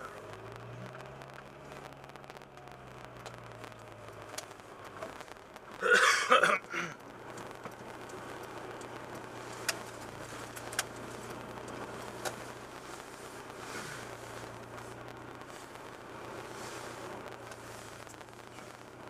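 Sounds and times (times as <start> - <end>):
person coughing: 5.8 - 7.0
sharp clicks: 7.3 - 14.9.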